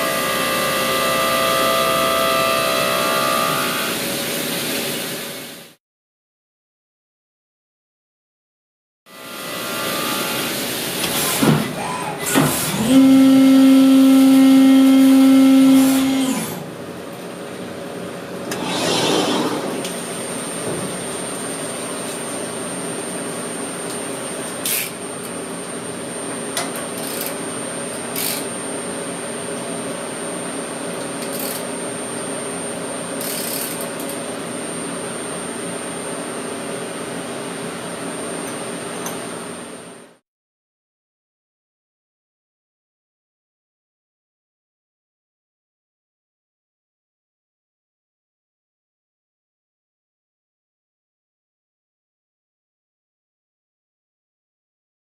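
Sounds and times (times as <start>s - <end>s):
milling machine whine: 0.0s - 4.3s
brief rush: 18.5s - 20.1s.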